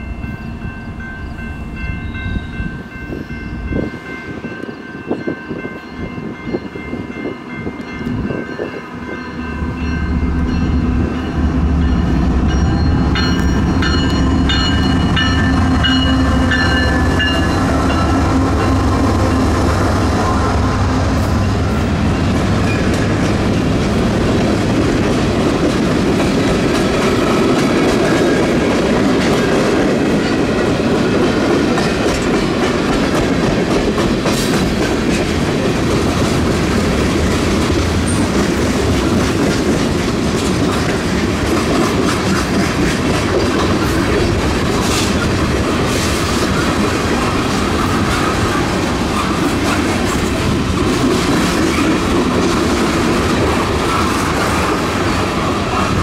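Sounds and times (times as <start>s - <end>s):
train wheels clacking over rail joints: 21.6s - 56.0s.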